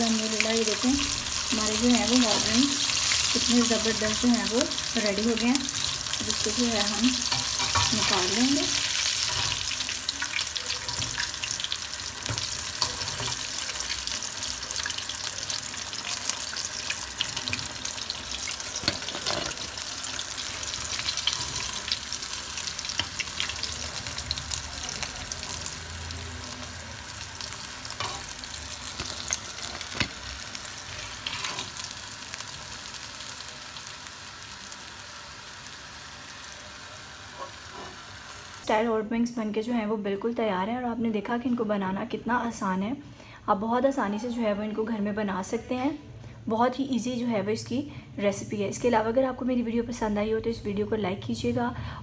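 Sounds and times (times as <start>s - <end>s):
chicken sizzling in deep oil: 0.0s - 38.7s.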